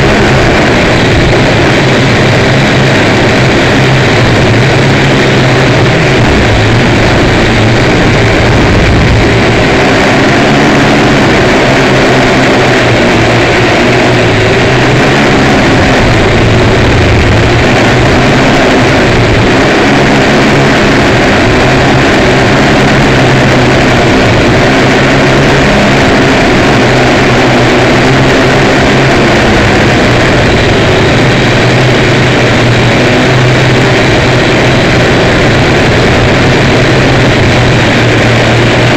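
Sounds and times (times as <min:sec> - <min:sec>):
wind rushing over microphone: 0:00.0 - 0:38.9.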